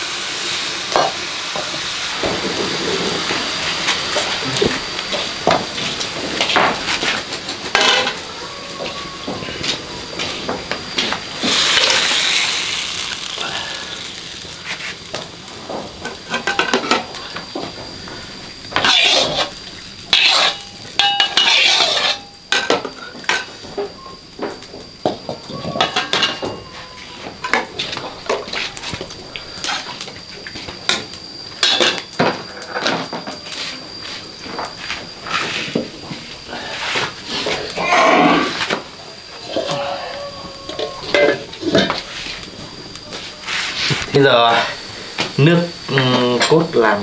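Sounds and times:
spatula scraping metal wok: 0:05.1 - 0:10.4, 0:18.7 - 0:23.5, 0:29.6 - 0:30.0, 0:43.2 - 0:44.8.

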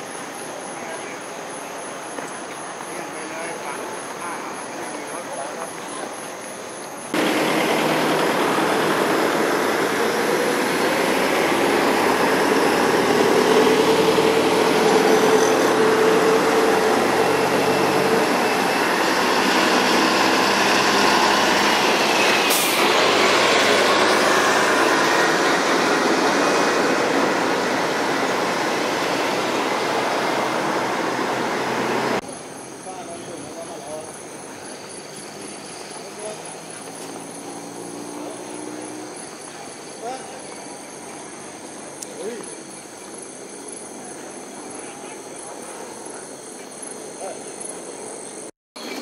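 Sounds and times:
heavy vehicle engine running: 0:07.2 - 0:32.6.

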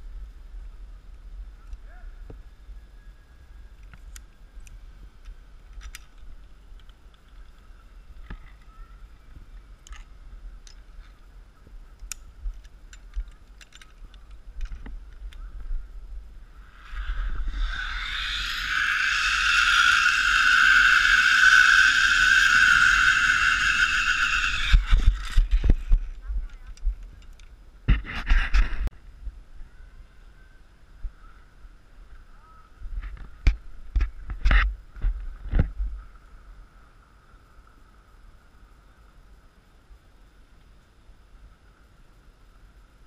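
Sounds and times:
wind rumble on microphone: 0:00.0 - 0:30.2, 0:30.8 - 0:40.4
small clicks: 0:11.9 - 0:15.4
zipline trolley whine on cable: 0:16.4 - 0:26.2
faint steady tone: 0:28.9 - 0:33.9.

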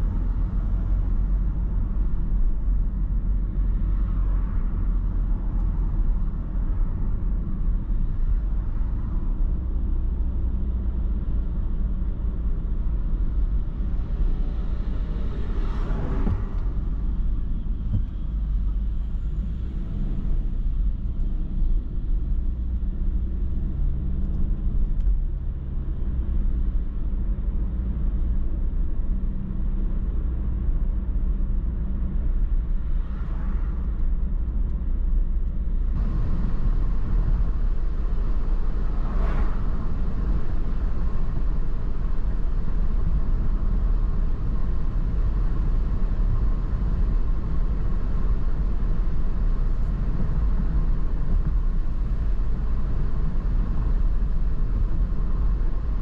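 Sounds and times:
car interior road rumble: 0:00.0 - 0:56.0.

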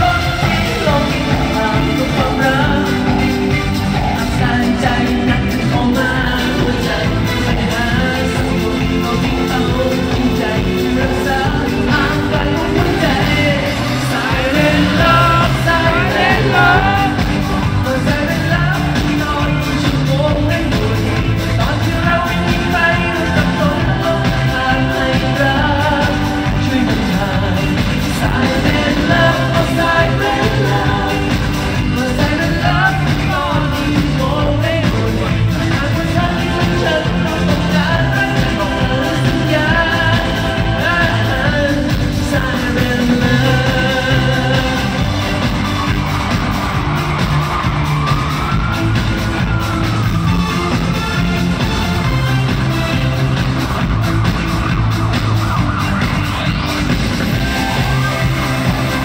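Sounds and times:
lead singer singing: 0:00.0 - 0:51.2
steady bass beat: 0:00.0 - 0:59.0.

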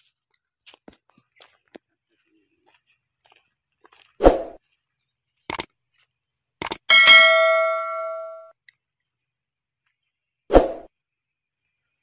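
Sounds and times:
mouse clicks: 0:06.6 - 0:06.8
bell ding: 0:06.9 - 0:08.5.

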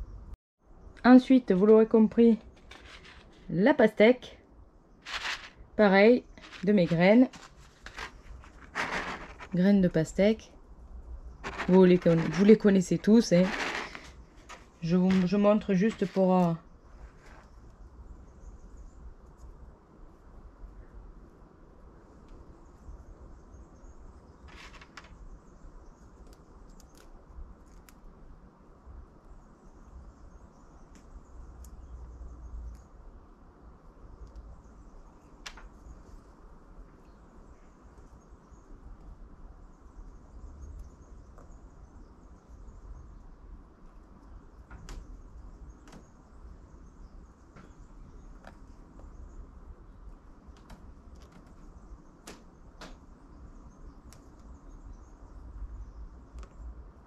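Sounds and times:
scratchy rustle in soil: 0:01.5 - 0:03.9, 0:05.0 - 0:10.4, 0:11.3 - 0:17.8, 0:24.5 - 0:25.1
small clicks: 0:26.2 - 0:28.0.

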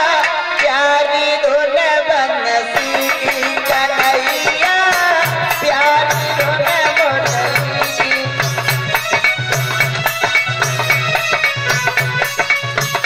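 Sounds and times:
instrumental folk melody: 0:02.8 - 0:13.0.

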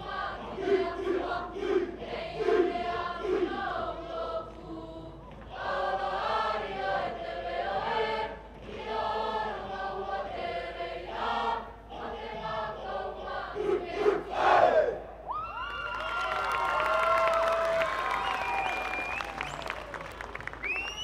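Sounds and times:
choir singing: 0:00.0 - 0:15.2.

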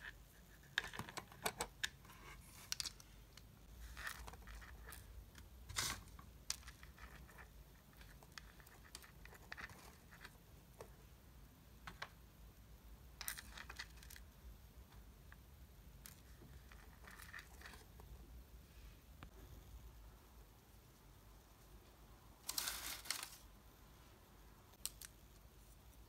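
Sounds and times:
hair ties clicking and rustling: 0:24.7 - 0:25.5.

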